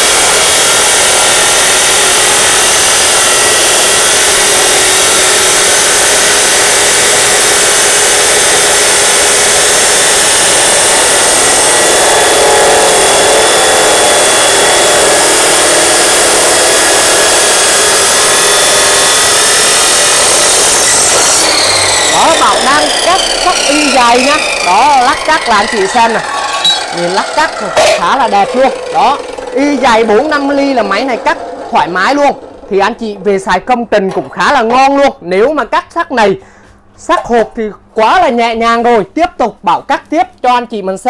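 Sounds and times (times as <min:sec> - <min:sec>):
cut-off saw grinding steel: 0:00.0 - 0:33.8.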